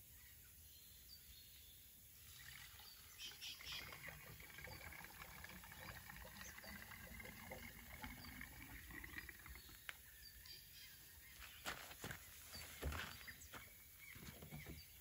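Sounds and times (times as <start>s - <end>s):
fuel trickling into tank: 2.2s - 9.9s.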